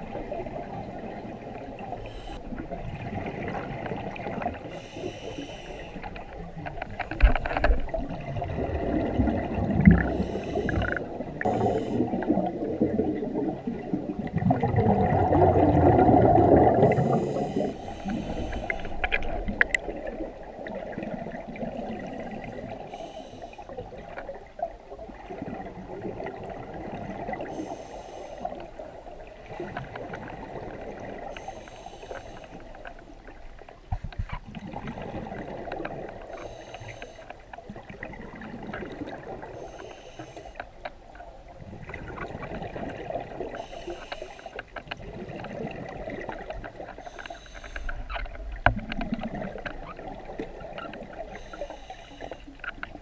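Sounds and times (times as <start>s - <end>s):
diver breathing through regulator: 2.0s - 2.5s, 4.7s - 6.2s, 10.0s - 12.3s, 16.4s - 19.3s, 21.9s - 23.7s, 27.4s - 28.7s, 31.3s - 33.1s, 36.3s - 37.4s, 39.5s - 40.6s, 43.5s - 44.7s, 46.9s - 48.1s, 51.2s - 52.6s
bubbling rush: 7.8s - 22.7s.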